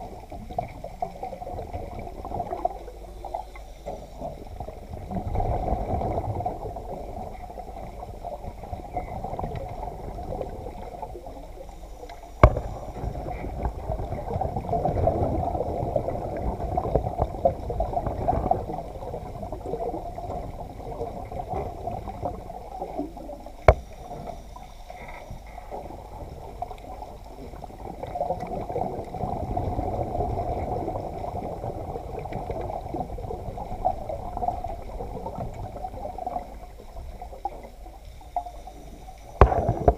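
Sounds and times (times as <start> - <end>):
underwater water wash and gurgling: 0.0 - 39.9
sharp knocks: 12.4 - 12.8.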